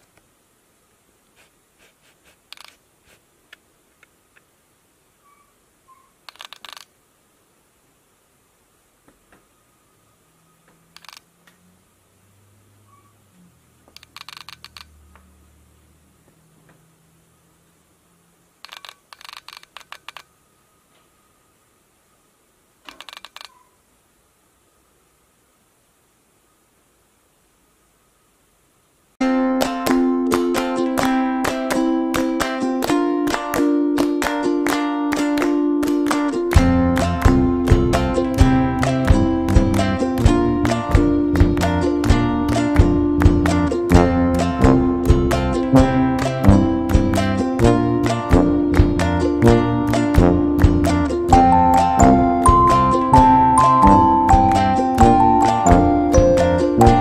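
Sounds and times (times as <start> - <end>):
faint bird chirps from video: 5.2 - 6.2, 12.8 - 13.3, 23.5 - 23.8.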